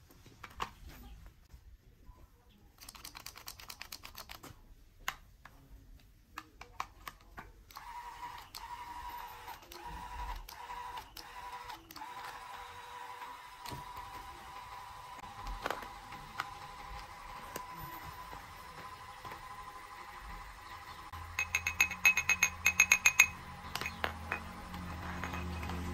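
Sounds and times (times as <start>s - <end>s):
electric drill motor whine: 7.8s - 21.6s.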